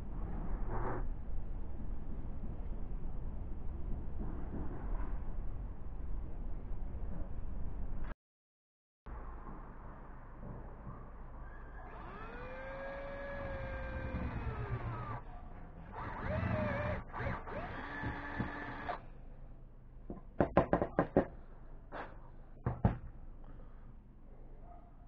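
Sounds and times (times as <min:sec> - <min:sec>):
cordless drill boring into wood: 0:11.9 - 0:15.2, 0:15.9 - 0:19.0.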